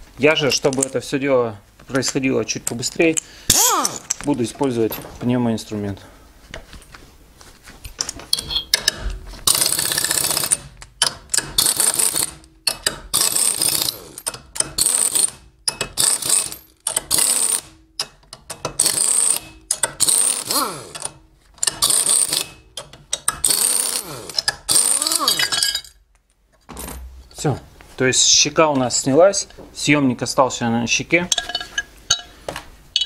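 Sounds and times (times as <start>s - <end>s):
pneumatic wrench bursts: 3.5s - 4.1s, 8.4s - 10.7s, 11.3s - 17.8s, 18.8s - 22.6s, 23.2s - 25.5s.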